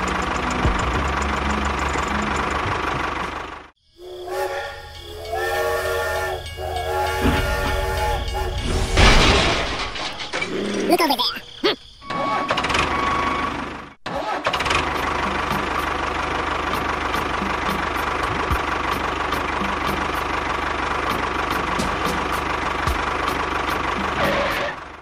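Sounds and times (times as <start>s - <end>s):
tractor engine idling: 0.0s - 10.4s, 14.6s - 25.0s.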